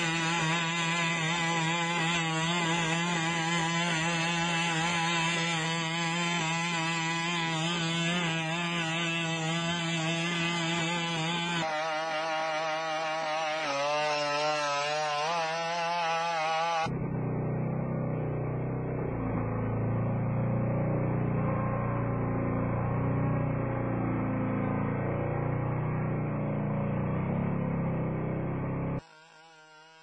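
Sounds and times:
robot engine buzzing: 0.0 - 27.7, 28.3 - 30.0.

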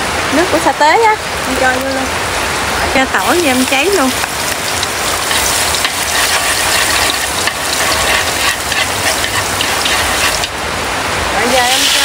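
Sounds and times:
garlic sizzling in oil: 2.8 - 10.6, 11.3 - 12.0.

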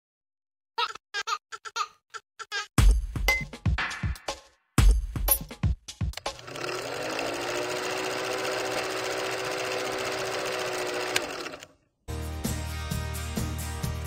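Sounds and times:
film projector whirring: 6.2 - 11.8.

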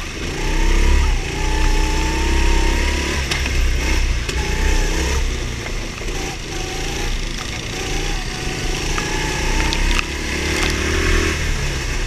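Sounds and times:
go-kart engine running: 0.0 - 12.0.

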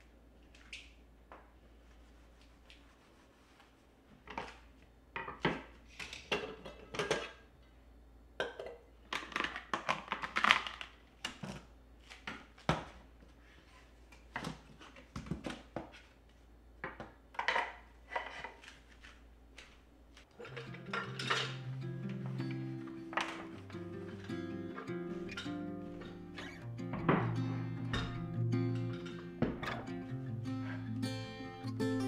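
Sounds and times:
cloth wiping rustle: 1.7 - 4.1
kitchen items knocking and clinking: 5.2 - 7.4, 8.4 - 10.6, 20.4 - 22.4, 23.1 - 26.2, 26.8 - 30.0.

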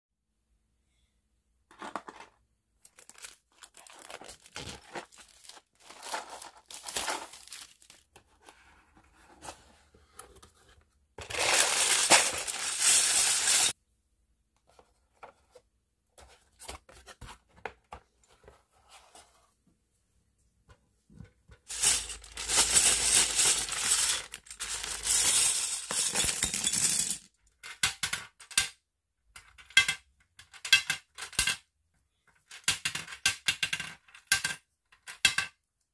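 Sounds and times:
package rustling: 2.8 - 8.1, 11.2 - 13.7
plastic wrap tearing and crinkling: 2.9 - 8.0
plastic pieces clicking: 11.2 - 13.7.

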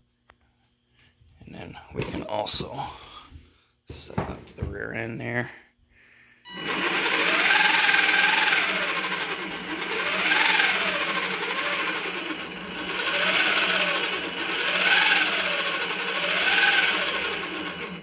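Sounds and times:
power drill motor whining: 6.5 - 18.0.

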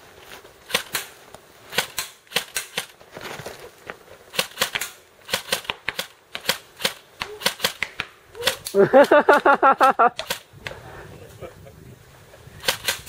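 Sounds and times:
airsoft rifle shots clicking: 0.7 - 1.1, 1.7 - 3.0, 4.3 - 9.4, 10.2 - 10.8, 12.6 - 13.0.

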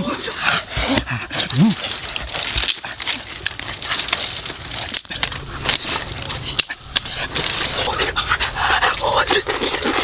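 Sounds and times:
dry twigs snapping: 1.3 - 8.1.

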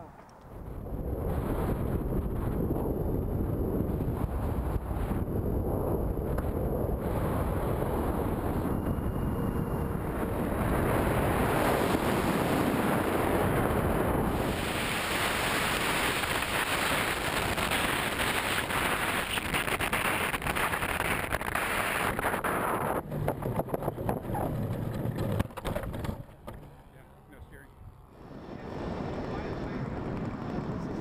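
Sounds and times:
wind rushing over camera: 0.0 - 26.2, 28.0 - 31.0
model jet rolling on ground: 0.0 - 31.0
wheels knocking on pavement: 23.0 - 26.8.

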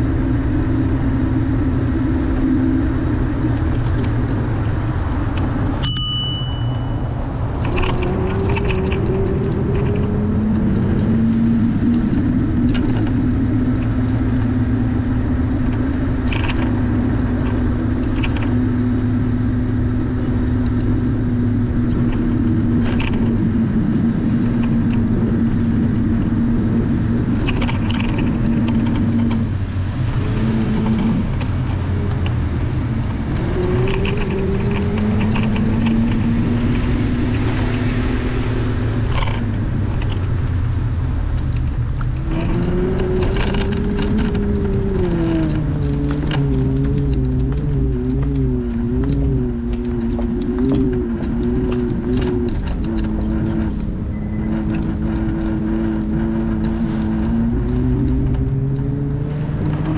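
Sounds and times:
car engine drone: 0.0 - 59.9
road noise: 0.0 - 59.9
short bright ding: 5.8 - 7.0.

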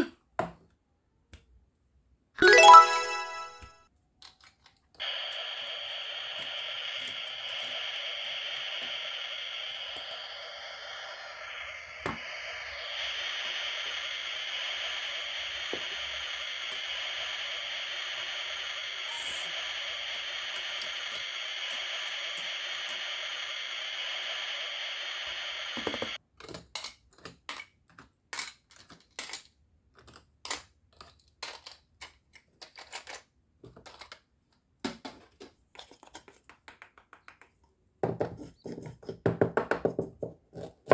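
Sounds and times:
toy grill sizzling hiss: 2.4 - 3.5, 5.0 - 26.2.

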